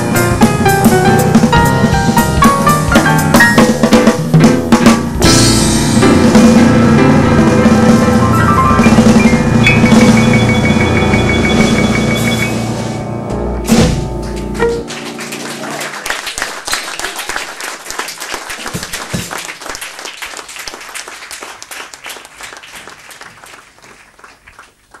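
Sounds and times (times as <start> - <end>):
sharp drum hit: 0.0 - 15.2
jazz piano trio chord: 0.0 - 16.0
audience applauding: 14.2 - 25.0.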